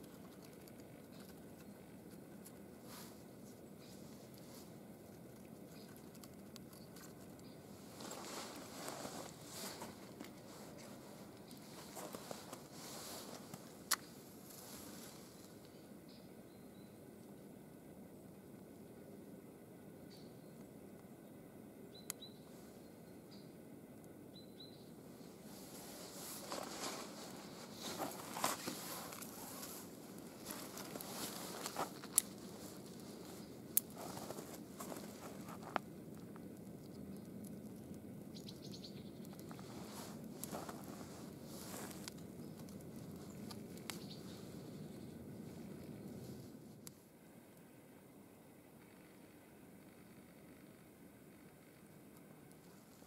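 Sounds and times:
fire popping: 0.0s - 15.8s, 25.1s - 53.0s
wood fire crackling: 0.0s - 15.8s, 24.9s - 53.0s
small ticks: 0.0s - 17.4s, 25.7s - 46.2s, 48.4s - 53.0s
clothing rustling: 7.8s - 13.8s, 25.5s - 33.4s, 39.6s - 42.1s.

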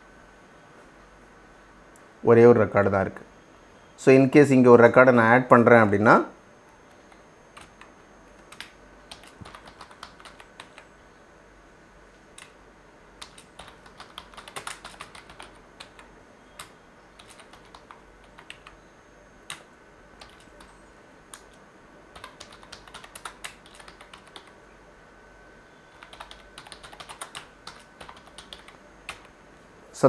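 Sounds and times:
keyboard typing: 6.7s - 10.9s, 12.3s - 12.6s, 13.2s - 18.8s, 19.4s - 24.6s, 25.9s - 29.4s.

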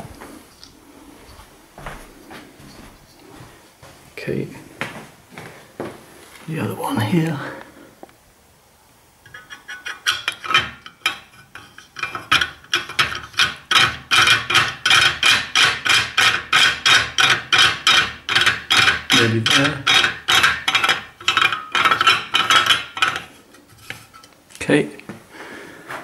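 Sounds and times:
rasping screw winding: 9.3s - 23.4s.

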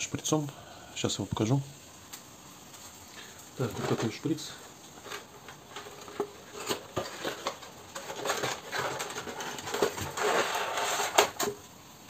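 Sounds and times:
cardboard rustling: 3.6s - 11.6s.

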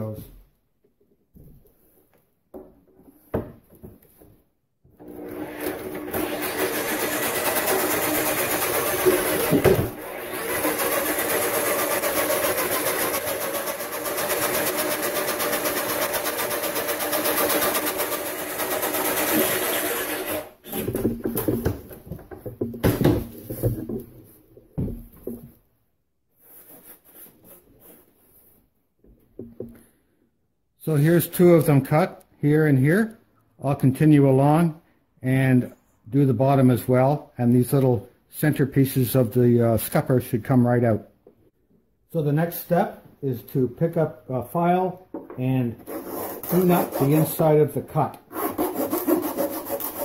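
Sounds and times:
jigsaw cutting fiberglass: 5.0s - 20.7s, 48.4s - 50.0s
handling knocks and rustles: 20.8s - 25.7s.

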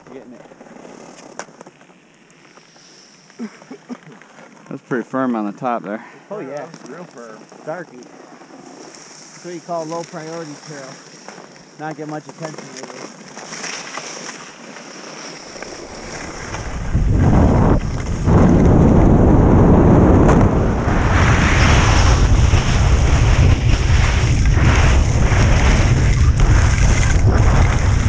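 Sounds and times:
skis scraping over snow: 0.0s - 28.0s
wind buffeting microphone: 15.8s - 28.0s.

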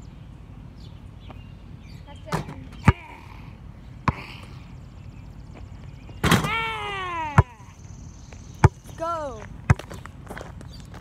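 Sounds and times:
basketball thudding: 7.3s - 7.7s.

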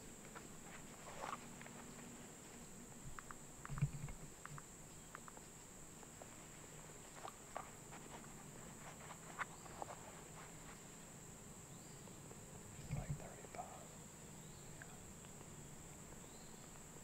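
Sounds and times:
faint clicks and rustles: 0.0s - 11.2s
insects chorus: 0.0s - 17.0s.

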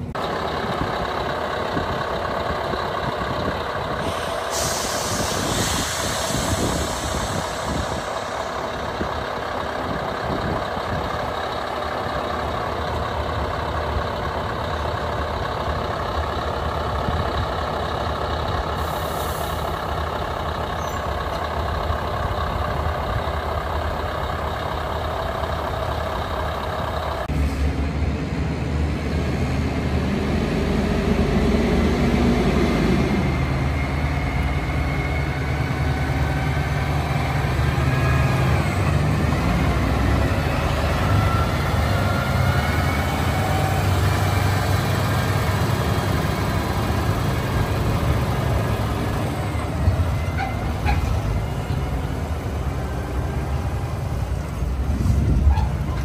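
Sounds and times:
diesel engine idling: 0.0s - 56.0s
truck driving past: 0.0s - 56.0s.

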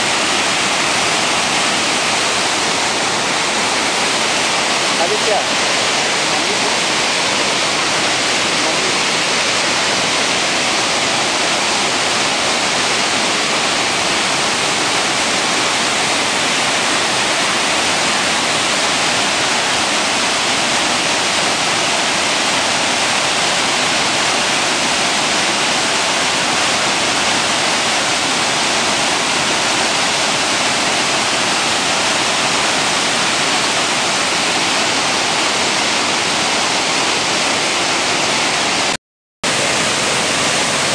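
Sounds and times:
roar of rushing water: 0.0s - 40.9s.

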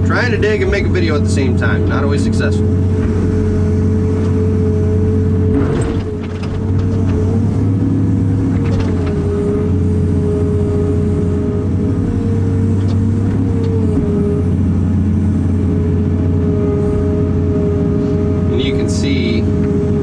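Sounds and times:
excavator engine and hydraulics: 0.0s - 20.0s.

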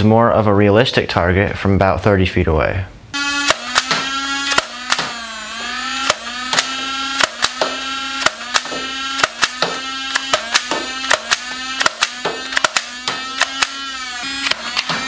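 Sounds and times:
toy blaster motors whining: 3.2s - 15.0s
sharp clicks of blaster firing: 3.4s - 5.2s, 6.0s - 14.9s.

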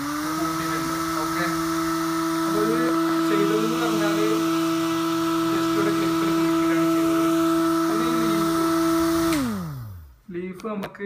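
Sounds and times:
blower motor humming: 0.0s - 10.3s.

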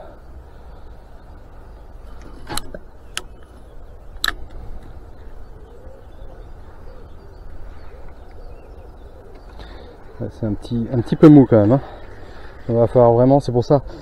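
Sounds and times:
steady low rumble: 0.0s - 14.0s
sharp clicks: 2.2s - 4.9s
pigeon cooing: 3.6s - 12.6s.

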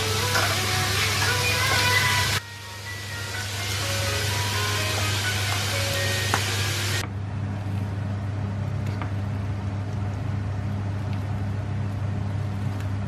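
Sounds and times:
hot oil sizzling: 0.0s - 7.0s.

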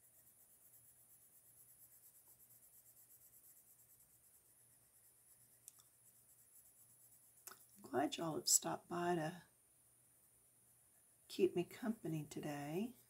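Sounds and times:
colored pencil scratching on paper: 0.0s - 8.9s.

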